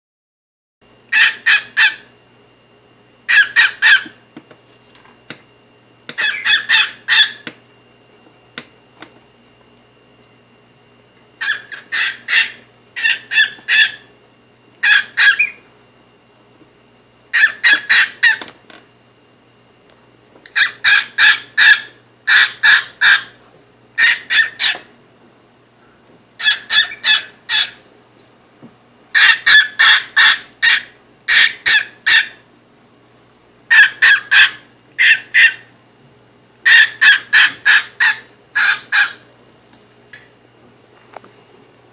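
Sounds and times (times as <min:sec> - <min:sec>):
cockatiel chirping: 0:01.1 - 0:02.1, 0:03.3 - 0:04.2, 0:06.1 - 0:07.5, 0:11.4 - 0:14.1, 0:14.8 - 0:15.6, 0:17.3 - 0:18.5, 0:20.5 - 0:23.4, 0:24.0 - 0:24.9, 0:26.4 - 0:27.8, 0:29.1 - 0:32.4, 0:33.7 - 0:35.7, 0:36.6 - 0:39.2.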